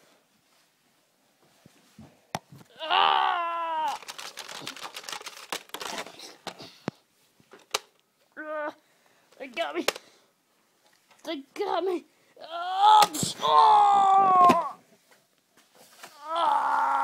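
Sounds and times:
young person yelling: 2.7 - 4.0, 11.7 - 14.8
camera rustling and clicking: 3.9 - 8.0.

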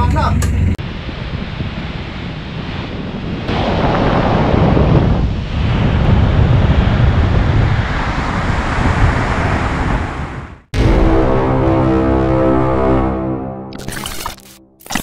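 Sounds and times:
wind buffeting microphone: 0.4 - 10.7
sea water rushing around bow: 0.6 - 10.7.

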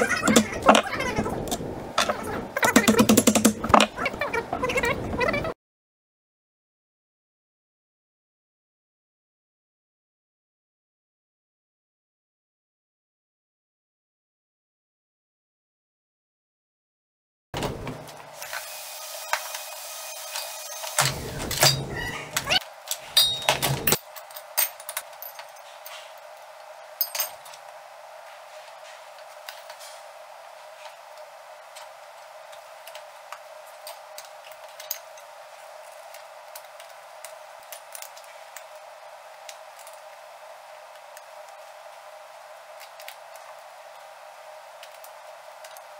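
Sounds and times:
spanner clicking on metal bolts: 2.8 - 3.6
steel chain track clanking: 23.2 - 25.6.

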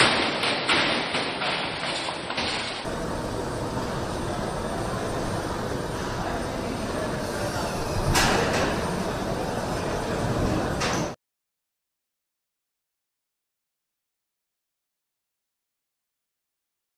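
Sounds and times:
factory floor noise: 0.0 - 11.2.

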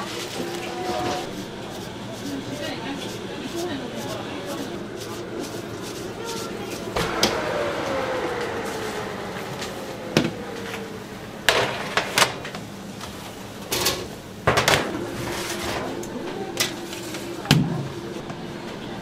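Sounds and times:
oven whine falling in pitch: 6.9 - 15.1.

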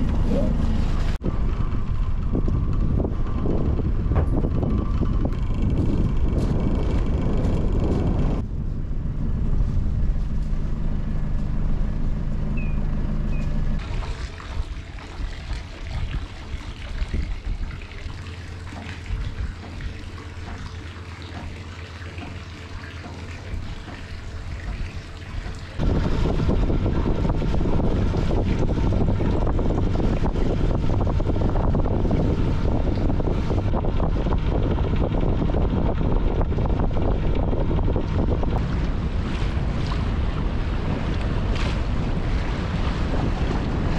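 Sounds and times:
wind buffeting microphone: 0.0 - 11.1, 12.6 - 21.6, 22.3 - 43.9
boat engine running: 0.0 - 43.9
water trickling: 13.8 - 34.3.

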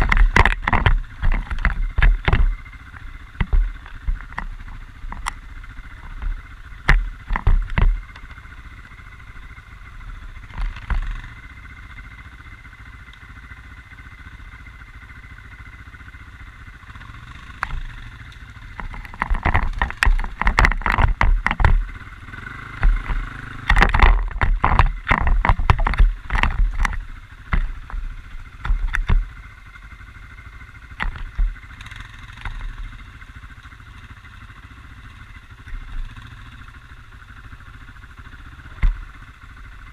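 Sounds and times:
knocking and rattling: 0.0 - 2.6, 18.8 - 21.9, 22.8 - 28.0
quad bike engine running: 0.0 - 39.9.

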